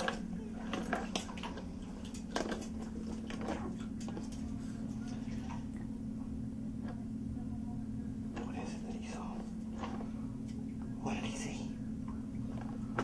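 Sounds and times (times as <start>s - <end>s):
puppy paws scrabbling at bathtub: 0.0s - 5.8s
steady low hum: 0.0s - 13.0s.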